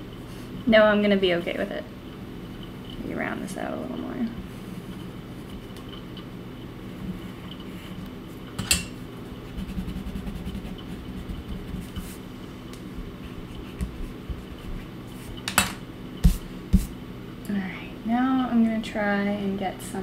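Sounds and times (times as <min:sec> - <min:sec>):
low steady hum: 0:00.0 - 0:20.0
eraser rubbing on paper: 0:09.4 - 0:12.3, 0:13.2 - 0:15.4.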